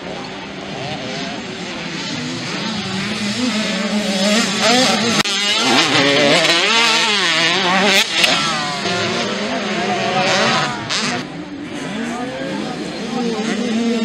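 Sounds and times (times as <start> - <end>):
motocross bikes revving: 0.0 - 14.0.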